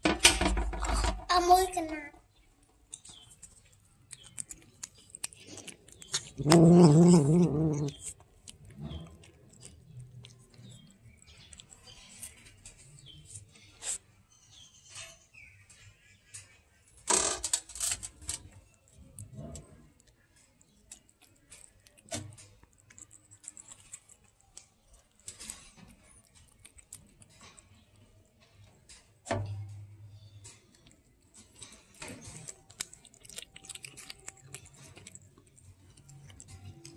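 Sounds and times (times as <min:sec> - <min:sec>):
cat chewing food: 0:02.5 - 0:14.1, 0:18.1 - 0:29.2, 0:30.6 - 0:36.9.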